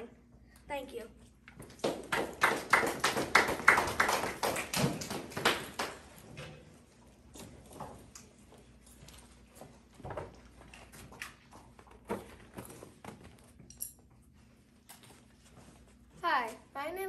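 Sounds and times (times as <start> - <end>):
audience clapping: 1.6 - 6.3.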